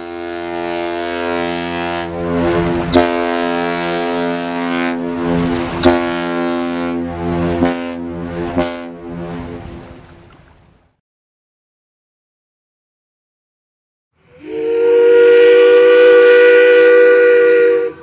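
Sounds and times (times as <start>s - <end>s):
deep ship whistle blast: 0.0s - 9.4s, 14.3s - 18.0s.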